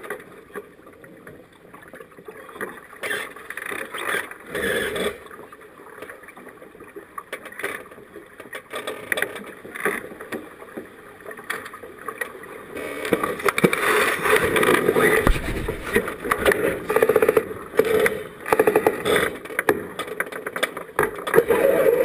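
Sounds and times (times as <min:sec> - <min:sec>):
water rushing along boat hull: 0:00.0 - 0:22.0
short knocks and clicks: 0:15.1 - 0:16.6.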